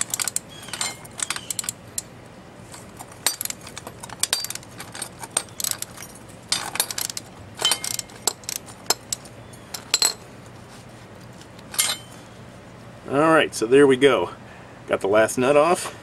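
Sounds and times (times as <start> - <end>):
metal ringing: 0.0 - 2.1, 2.7 - 10.3, 11.6 - 12.2
socket ratchet clicking: 0.0 - 2.1.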